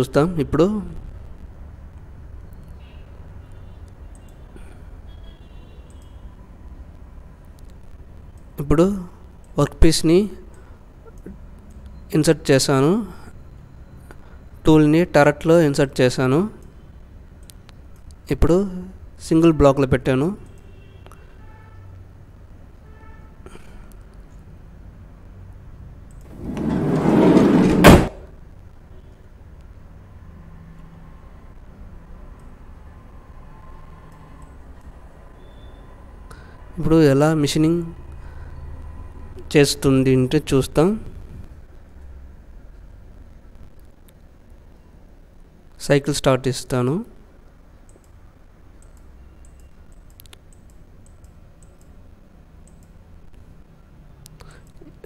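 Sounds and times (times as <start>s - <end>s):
sliding door shutting with clack: 26.3s - 28.3s
computer mouse clicks: 34.1s - 34.9s, 47.8s - 48.2s, 48.8s - 52.0s, 52.6s - 53.4s.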